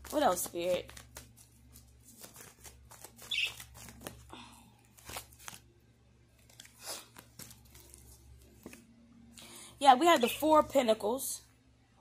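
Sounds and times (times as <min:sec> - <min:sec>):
cards shuffling: 0:00.0 - 0:05.7, 0:06.3 - 0:08.9.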